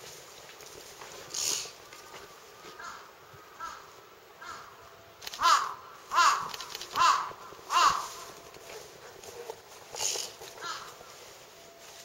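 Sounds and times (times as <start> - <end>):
crow cawing: 2.8 - 4.8, 5.4 - 8.4, 10.0 - 11.1.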